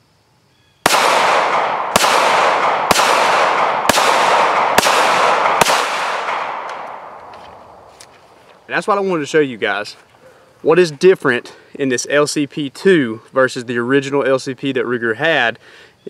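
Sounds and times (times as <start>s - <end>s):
pistol shots: 0.8s - 7.9s.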